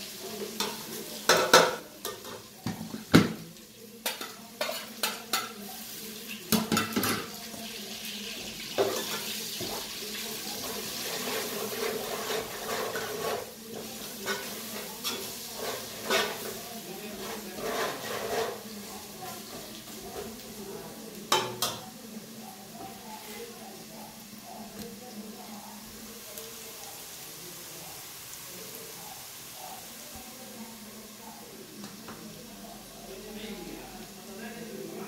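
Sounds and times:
masala sizzling: 0:00.0 - 0:35.0
spoon scraping and stirring: 0:04.0 - 0:05.9, 0:10.6 - 0:21.8.

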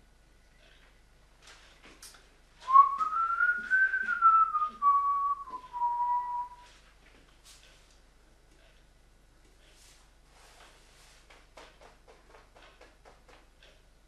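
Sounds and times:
man whistling a tune: 0:02.7 - 0:06.7.

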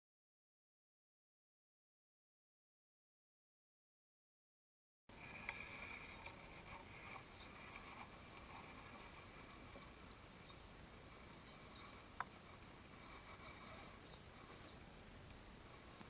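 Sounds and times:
faint outdoor hiss: 0:05.1 - 0:16.0.

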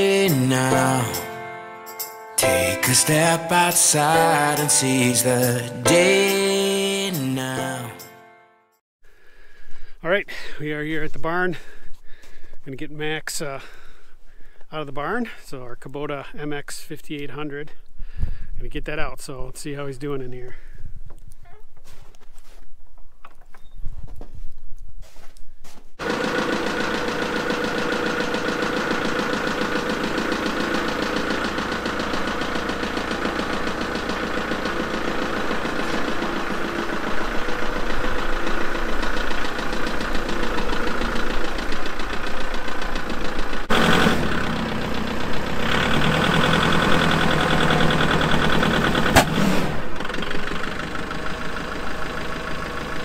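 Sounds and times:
tractor diesel engine running: 0:00.0 - 0:08.0, 0:26.0 - 0:53.0.

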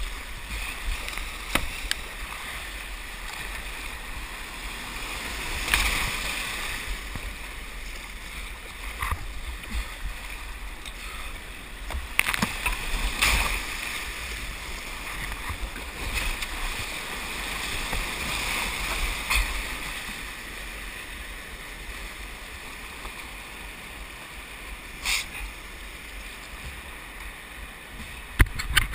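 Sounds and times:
whitewater rushing: 0:00.0 - 0:28.4
sharp water splashes: 0:04.6 - 0:07.2, 0:12.0 - 0:20.0.

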